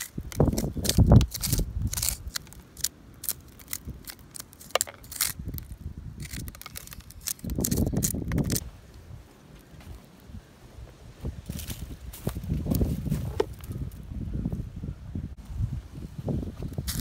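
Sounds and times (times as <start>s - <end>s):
blade scraping moss off bark: 0.0s - 8.7s.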